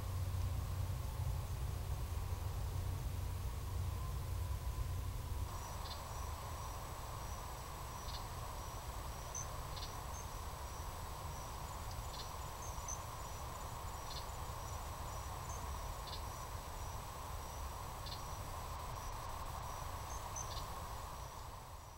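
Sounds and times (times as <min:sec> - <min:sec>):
microphone hiss and rumble: 0:00.0 - 0:21.9
crickets trilling: 0:05.4 - 0:21.9
short insect call: 0:05.5 - 0:21.9.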